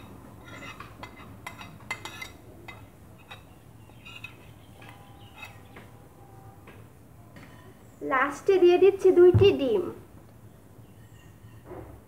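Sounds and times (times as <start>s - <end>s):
metal spoon clinking on plate: 0.0s - 5.8s.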